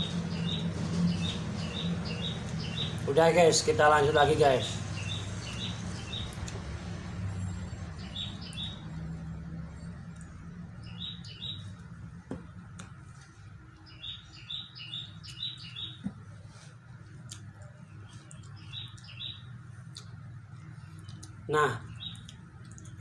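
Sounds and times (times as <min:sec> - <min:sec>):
small bird chirping: 0:00.0 - 0:03.1, 0:04.6 - 0:06.6, 0:07.4 - 0:09.2, 0:09.8 - 0:11.8, 0:13.8 - 0:16.1, 0:17.2 - 0:23.0.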